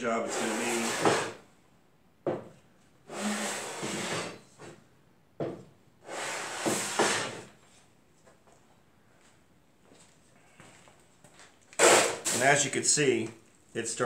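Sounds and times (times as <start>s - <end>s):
metal scraping on sandpaper: 0.2s - 1.4s.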